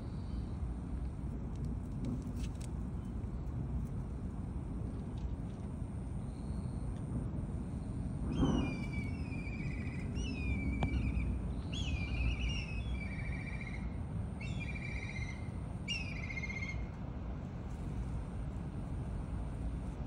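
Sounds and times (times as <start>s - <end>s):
low outdoor rumble: 0.0s - 20.0s
songbird trilling: 8.4s - 16.8s.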